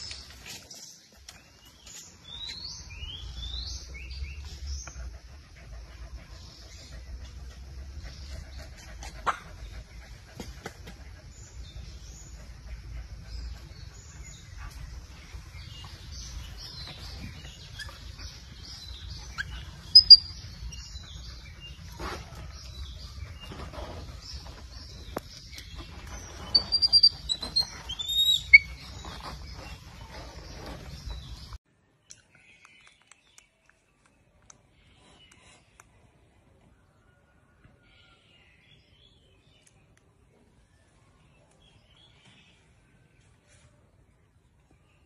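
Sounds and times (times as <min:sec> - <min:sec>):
high chirping animal calls: 0:18.8 - 0:21.2.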